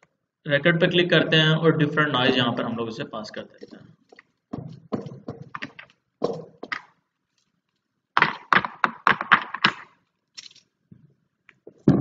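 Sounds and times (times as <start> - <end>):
knocking on hard surface: 4.5 - 6.8.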